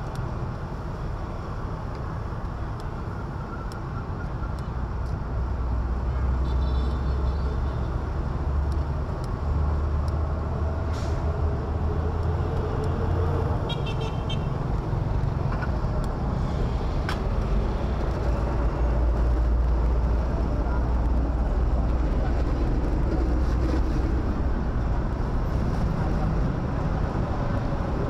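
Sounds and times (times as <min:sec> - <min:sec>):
traffic engines rumbling: 0:00.0 - 0:28.0.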